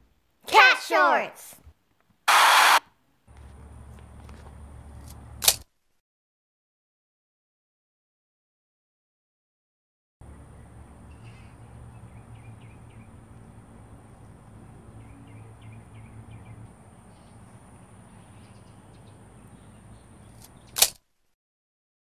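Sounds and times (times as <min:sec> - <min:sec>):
faint high whine: 0:02.3 - 0:04.0
sharp loud click: 0:05.4 - 0:05.7, 0:20.4 - 0:21.0.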